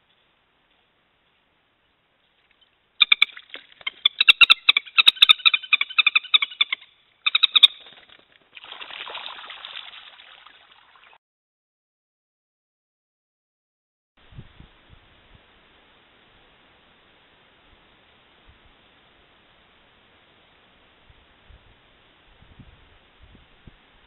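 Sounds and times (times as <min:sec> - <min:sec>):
moorhens clucking: 0:02.5 - 0:08.1
wings flapping: 0:07.6 - 0:09.4.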